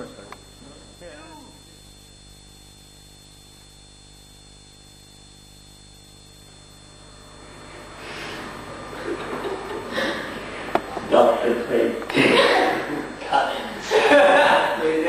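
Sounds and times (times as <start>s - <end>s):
electrical mains hum: 0.0s - 15.0s
hissing noise: 6.8s - 12.2s.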